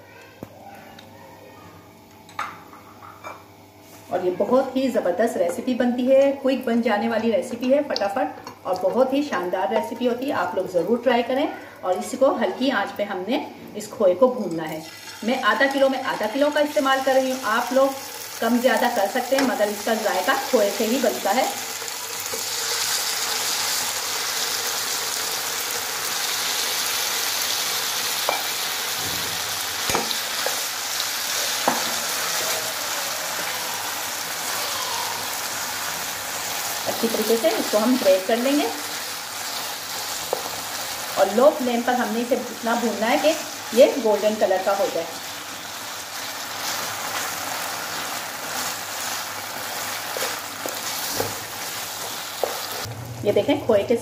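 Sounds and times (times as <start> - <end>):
frying sizzle: 13.8 - 53.8.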